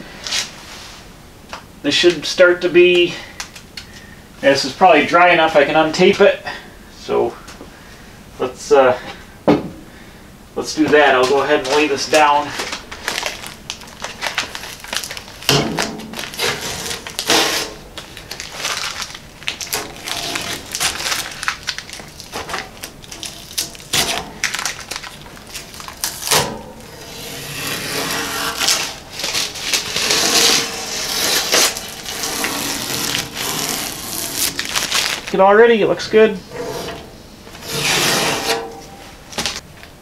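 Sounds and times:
tape peeling and crumpling: 10.9 - 35.4, 36.5 - 39.6.

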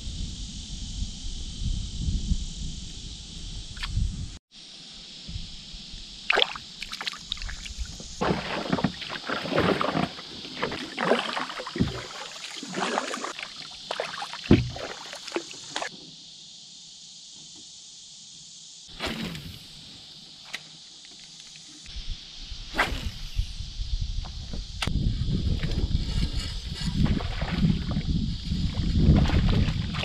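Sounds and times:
water splashing and dripping: 6.3 - 15.9, 27.0 - 30.0
knocks on canoe hull: 14.5 - 14.9.

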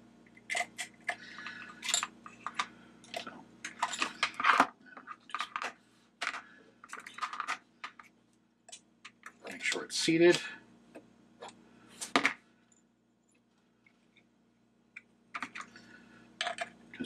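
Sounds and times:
metal pliers clattering: 0.5 - 4.6.

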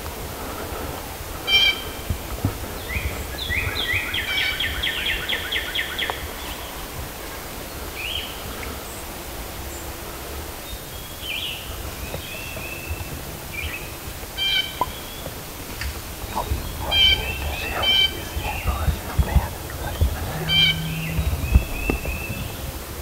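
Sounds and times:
low rumble: 16.0 - 23.0.

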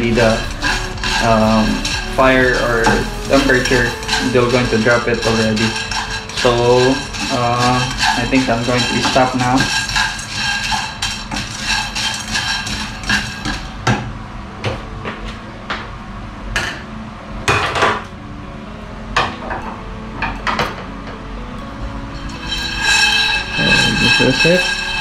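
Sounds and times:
metal kitchenware clanking: 0.0 - 14.0, 22.1 - 25.0.

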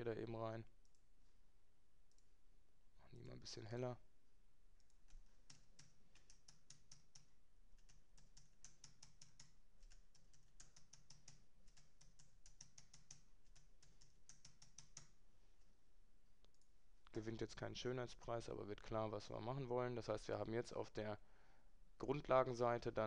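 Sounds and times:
keyboard and mouse clicking: 4.8 - 15.2.

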